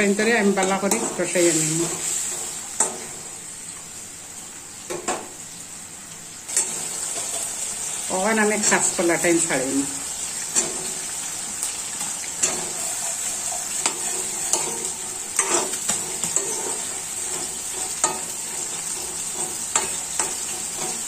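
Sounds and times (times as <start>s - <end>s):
food sizzling in oil: 0.0s - 21.0s
utensil scraping a pan: 12.0s - 21.0s.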